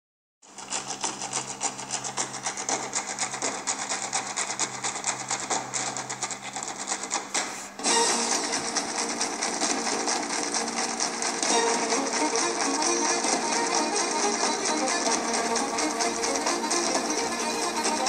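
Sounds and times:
rapid clicking: 0.4 - 18.0
music: 7.8 - 18.0.

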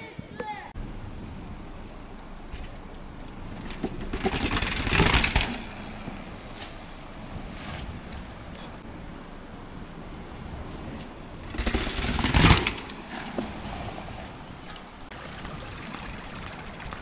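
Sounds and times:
bike knocking and rattling down steps: 2.5 - 8.3, 11.0 - 13.6, 14.7 - 17.0.

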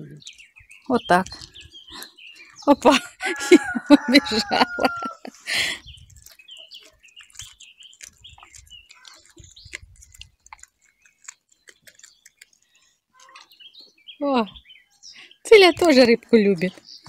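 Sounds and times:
small birds chirping: 0.0 - 17.0
cat chewing raw fish: 3.7 - 13.5.

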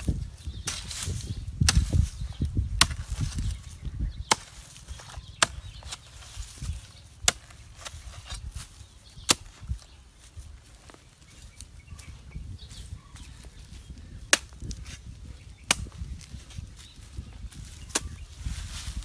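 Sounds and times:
hoe blade chopping dirt: 0.6 - 3.6, 4.2 - 9.8, 14.2 - 15.0, 15.6 - 16.1, 17.7 - 18.3
thuds of loosened earth: 2.8 - 3.5.

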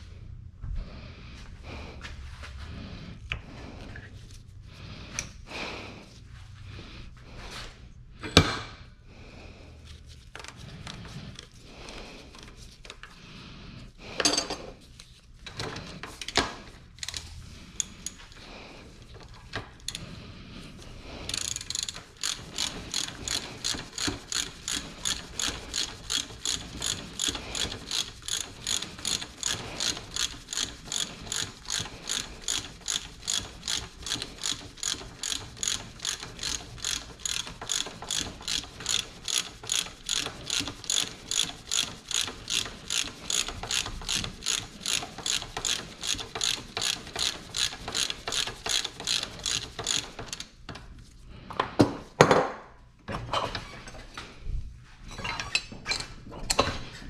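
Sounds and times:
ratchet wrench clicking: 17.0 - 18.2, 21.2 - 50.5.

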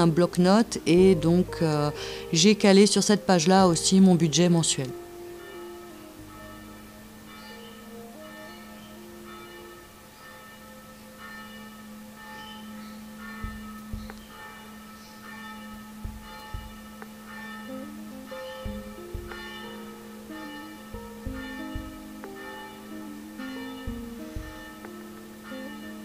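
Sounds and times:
chiming bell-like music: 5.3 - 26.0
soft low thumps: 13.3 - 14.5, 15.6 - 17.3, 18.6 - 19.8, 20.9 - 22.3, 23.8 - 24.9
held low tone: 13.3 - 26.0.

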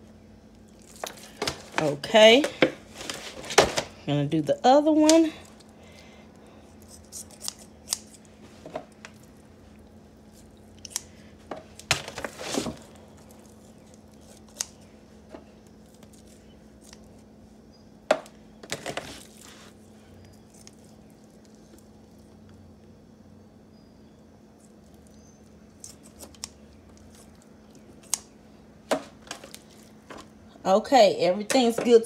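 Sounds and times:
kitchen shears snipping: 6.8 - 9.2, 10.4 - 11.2, 13.4 - 14.9, 25.8 - 28.3.

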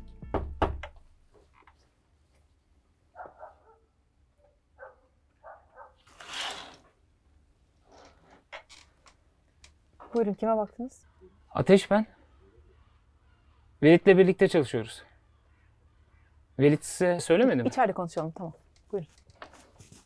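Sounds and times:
dog barking faintly: 3.1 - 6.0.

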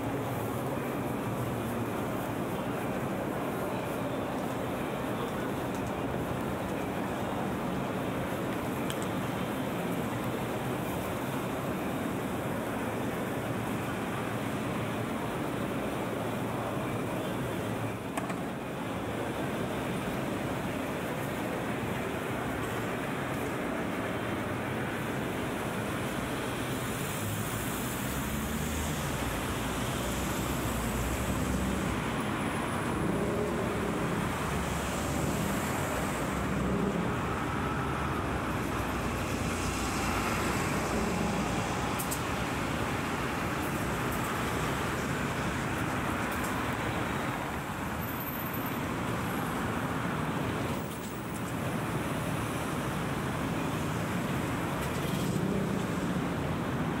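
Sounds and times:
road traffic noise: 0.0 - 57.0
passing vehicles rumbling: 19.7 - 57.0.

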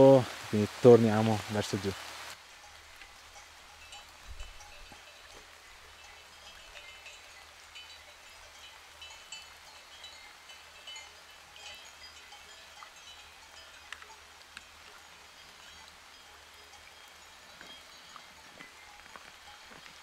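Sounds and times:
light rain pattering: 0.0 - 20.0
sheep bells clinking: 0.9 - 20.0.

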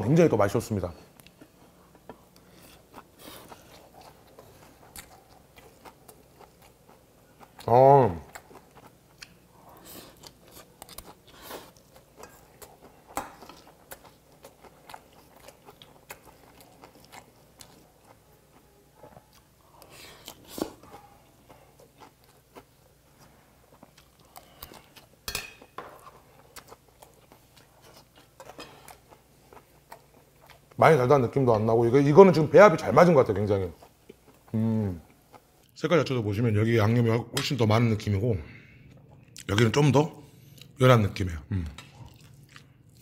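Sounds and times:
chewing and crunching: 1.1 - 30.8, 41.7 - 43.0.

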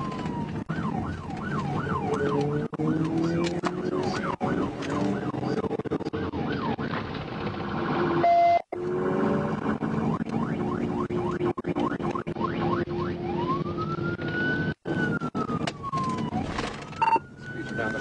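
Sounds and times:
loud steady siren blast: 0.0 - 6.9, 7.7 - 18.0
engine and road noise: 0.0 - 18.0
police siren yelp and warble: 0.0 - 18.0.

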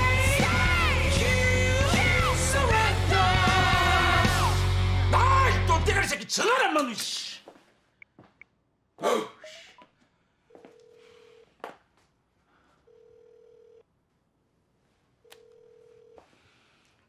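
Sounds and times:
telephone ringback tone: 10.6 - 11.5, 12.9 - 13.8, 15.3 - 16.3.

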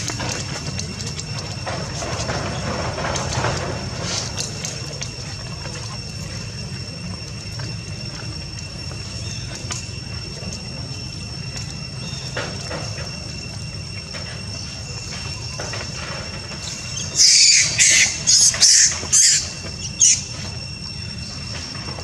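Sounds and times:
continuous low rumble: 0.0 - 22.0
high-pitched insect drone: 0.0 - 22.0.

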